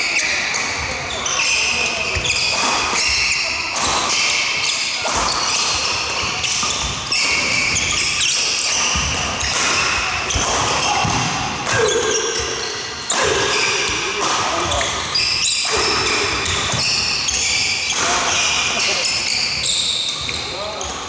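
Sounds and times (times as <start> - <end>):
shoes squeaking on wooden floor: 0.0 - 3.5, 4.1 - 21.0
racket hitting shuttlecock: 2.2 - 4.4, 5.0 - 18.9.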